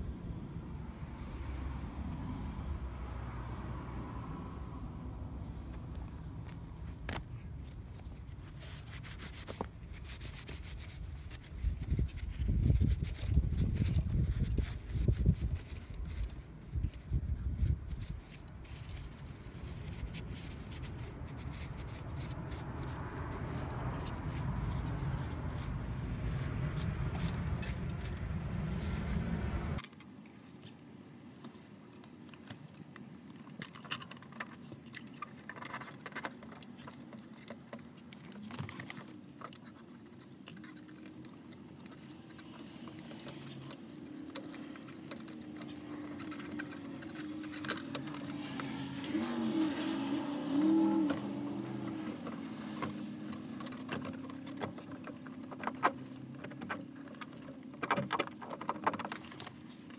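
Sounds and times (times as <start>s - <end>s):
wind rumbling on microphone: 10.0s - 29.8s
metal clinks and rubbing: 39.4s - 49.1s.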